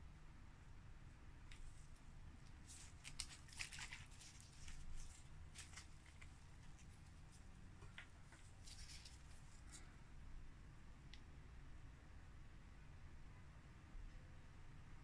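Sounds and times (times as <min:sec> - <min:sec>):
light clicks and rustles: 0:01.5 - 0:09.9.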